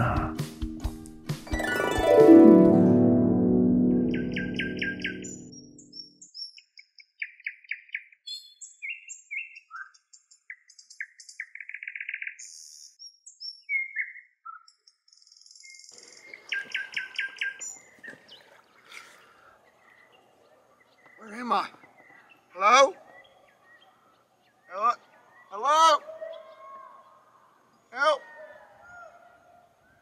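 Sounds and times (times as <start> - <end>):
faint outdoor background: 0.0 - 30.0
small birds chirping: 4.1 - 29.0.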